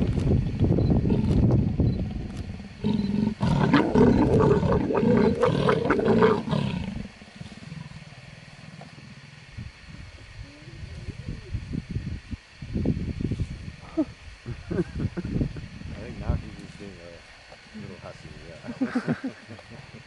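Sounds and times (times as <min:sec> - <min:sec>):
leopards growling: 0:01.0 - 0:09.6.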